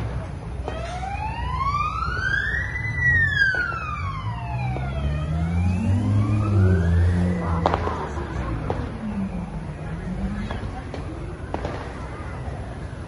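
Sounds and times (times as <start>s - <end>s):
low traffic rumble: 0.0s - 13.0s
siren wailing: 0.6s - 10.8s
vehicle engine climbing in pitch: 0.6s - 11.7s.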